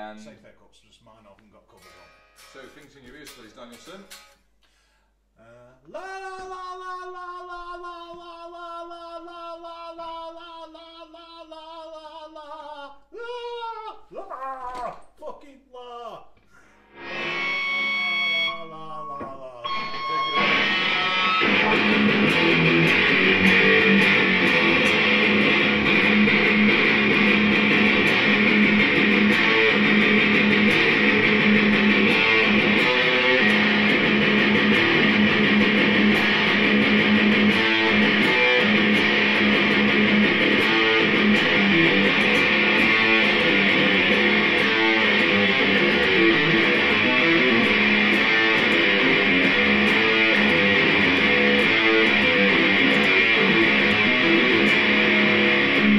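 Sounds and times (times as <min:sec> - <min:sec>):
distorted electric guitar riffs: 0:16.7 - 0:55.9.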